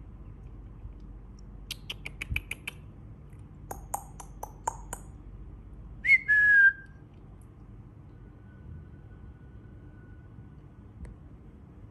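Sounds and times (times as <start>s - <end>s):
bird whistled call: 6.0s - 6.9s.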